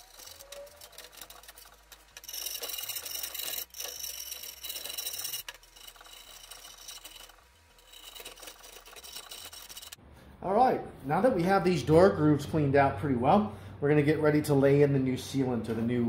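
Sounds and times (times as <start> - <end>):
screwdriver scraping metal groove: 0.0 - 10.0.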